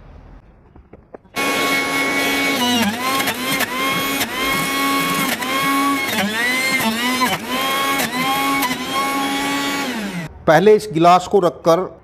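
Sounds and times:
juicer motor whine: 1.4s - 10.3s.

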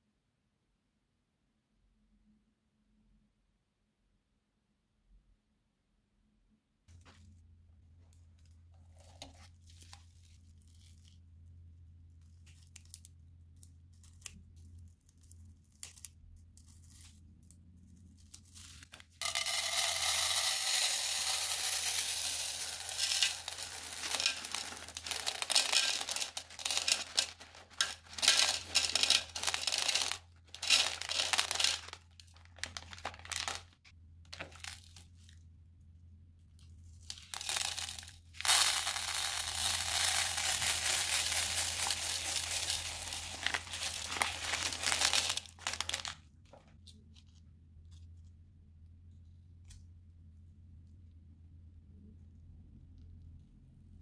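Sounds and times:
plastic bag crinkling: 18.3s - 35.2s, 37.1s - 46.2s
plastic beads pouring into bowl: 19.2s - 33.8s, 34.4s - 35.0s, 37.1s - 46.2s.

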